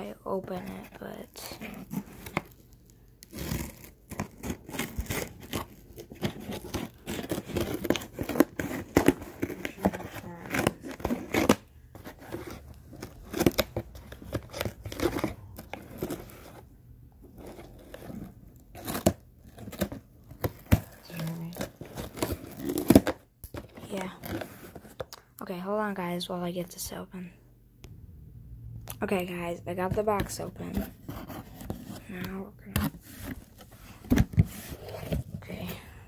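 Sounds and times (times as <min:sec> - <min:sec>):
cardboard rustling: 0:00.3 - 0:25.1, 0:29.3 - 0:35.9
packing tape tearing: 0:00.6 - 0:16.5, 0:17.4 - 0:24.7
scissors cutting cardboard: 0:03.2 - 0:16.6, 0:17.3 - 0:24.8, 0:30.1 - 0:33.4.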